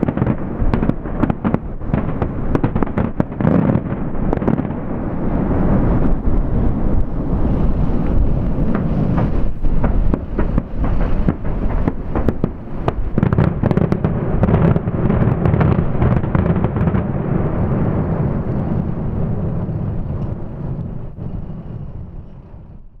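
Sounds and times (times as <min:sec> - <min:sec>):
fireworks crackling and cracks: 0:00.0 - 0:22.8
low rumble: 0:04.7 - 0:13.2, 0:15.9 - 0:23.0.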